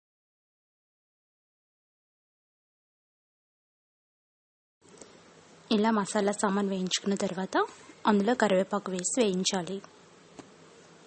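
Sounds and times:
faint hiss: 4.8 - 11.0.

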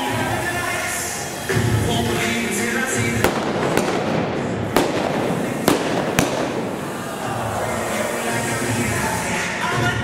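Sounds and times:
blank gunshots from a revolver: 3.3 - 6.8.

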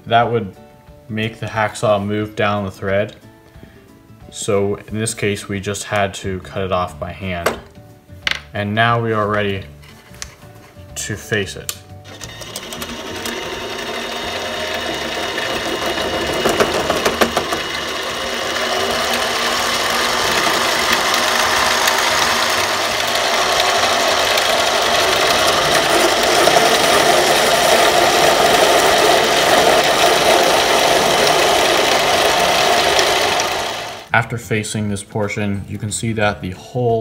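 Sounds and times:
lathe motor and cutting noise: 12.1 - 34.1.

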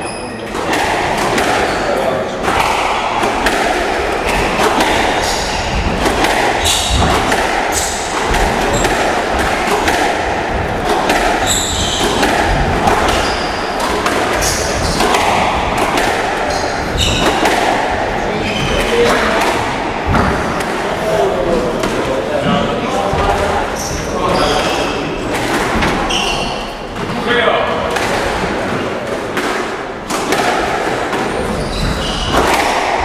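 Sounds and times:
squash ball knocking off walls: 0.5 - 21.0, 27.8 - 33.0
shoes squeaking on court floor: 4.3 - 5.8, 8.7 - 9.1, 11.2 - 15.6, 16.5 - 17.5, 18.3 - 19.3, 23.2 - 25.2, 25.8 - 27.2, 31.3 - 32.6.

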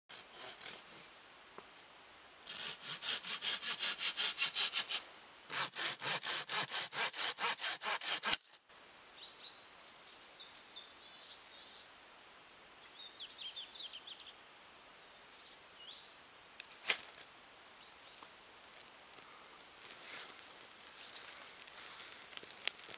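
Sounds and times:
hand saw cutting branch: 0.1 - 1.1, 2.4 - 8.6
sharp scrape: 2.5 - 8.6
faint high bird chirps: 8.4 - 12.0, 12.8 - 16.4.

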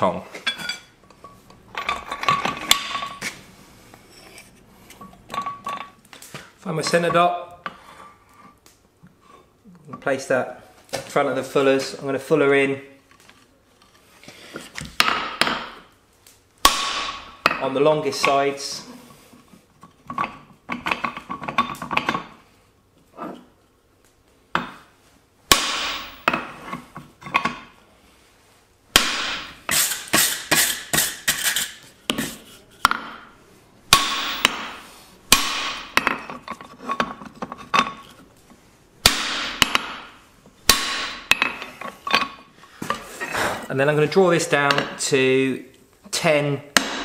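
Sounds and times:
hammer clanging on metal: 33.9 - 38.0.

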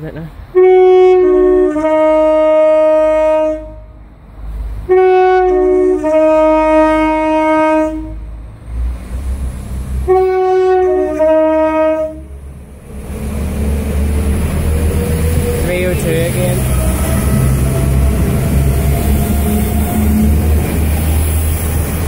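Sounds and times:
train rumble: 0.0 - 22.0
two-tone train horn: 0.6 - 4.0, 4.9 - 8.3, 10.0 - 12.4.

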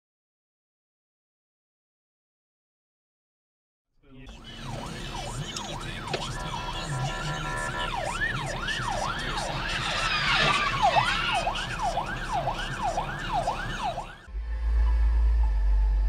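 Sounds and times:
emergency siren wailing: 4.3 - 15.6.

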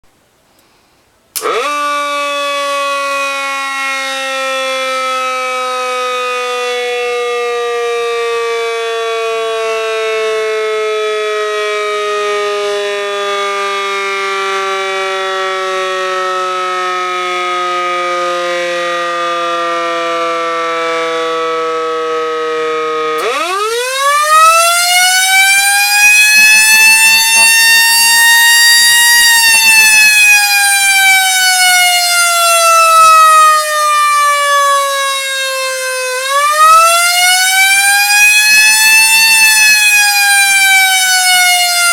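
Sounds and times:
siren rising and falling: 1.4 - 41.9.

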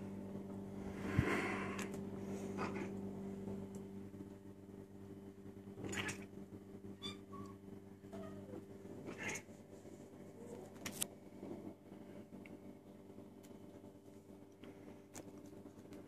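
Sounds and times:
steady low hum: 0.0 - 16.0
cats licking and chewing: 13.4 - 16.0.

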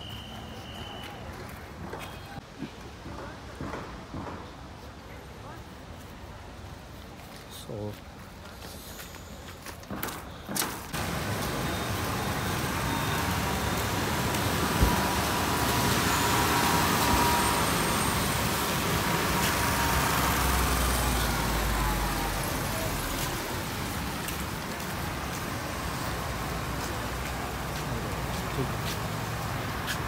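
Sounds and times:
vehicle engines running: 10.9 - 30.0
tyres hissing on wet road: 11.0 - 30.0.

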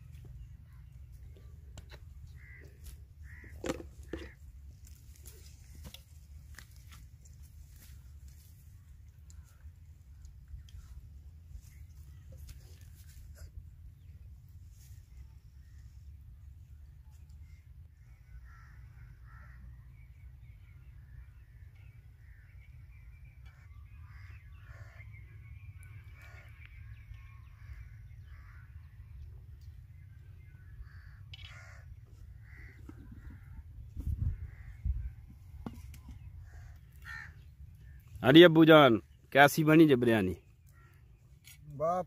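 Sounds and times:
crows cawing: 2.2 - 7.0, 18.0 - 19.8, 23.4 - 25.2, 26.0 - 26.7, 27.4 - 28.9, 30.6 - 33.6, 34.3 - 38.2, 40.6 - 41.2.

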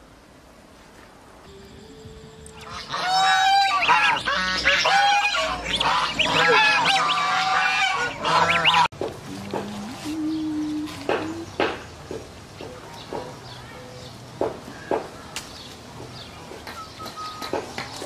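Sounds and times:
geese honking: 2.5 - 8.9.

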